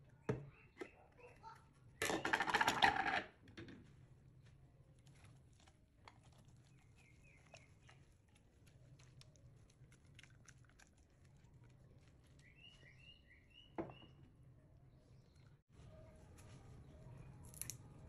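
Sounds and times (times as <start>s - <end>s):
faint bird chirping: 12.2s - 17.5s.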